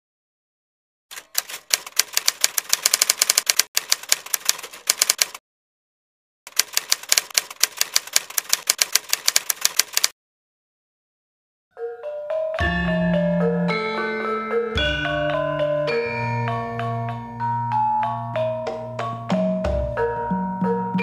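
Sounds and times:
typewriter key clacks: 0:01.1 - 0:05.4, 0:06.5 - 0:10.1.

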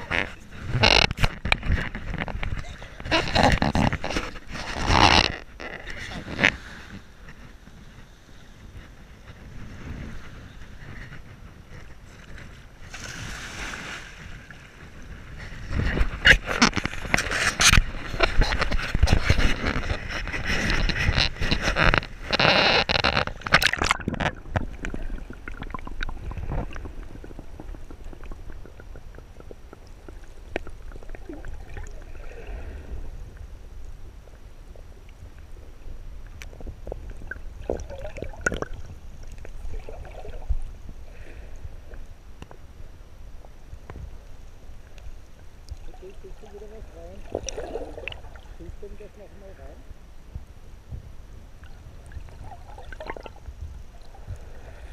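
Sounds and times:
waves splashing over camera: 0:00.0 - 0:33.1, 0:45.8 - 0:50.0.

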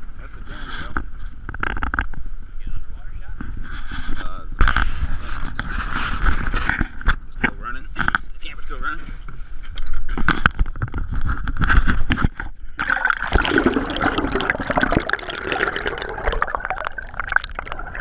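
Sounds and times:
water gurgling and sloshing: 0:10.7 - 0:18.0.

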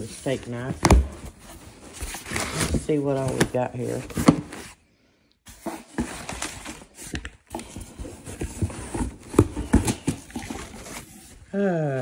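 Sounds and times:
packing paper rustling and crinkling: 0:00.0 - 0:04.8, 0:05.5 - 0:11.5.

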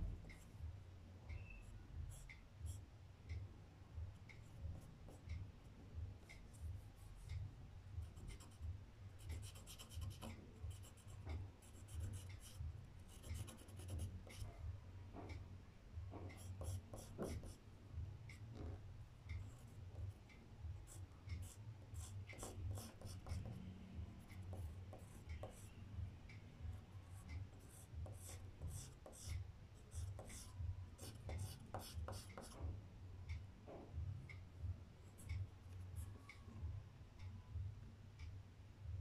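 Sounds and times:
pencil scratching on paper: 0:09.3 - 0:14.4, 0:21.4 - 0:23.5, 0:27.6 - 0:29.3, 0:29.9 - 0:32.6.

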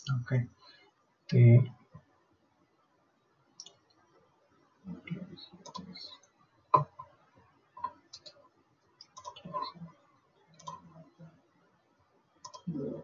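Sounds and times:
computer mouse clicks: 0:05.6 - 0:07.1, 0:07.8 - 0:08.4, 0:09.0 - 0:09.8, 0:10.6 - 0:11.0, 0:12.4 - 0:12.7.

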